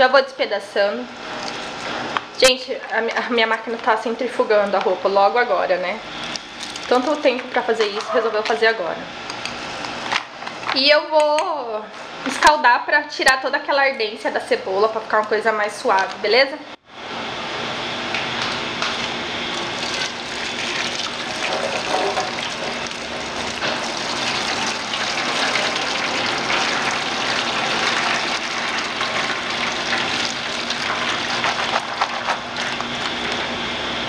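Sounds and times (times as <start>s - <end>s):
washing machine spinning hum: 0.0s - 34.0s
water pouring and splashing into sink: 18.9s - 33.4s.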